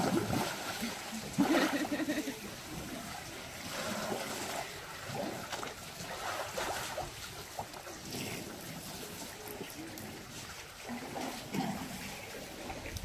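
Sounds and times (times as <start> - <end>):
outdoor background noise: 0.0 - 13.0
water trickling and sloshing: 0.0 - 13.0.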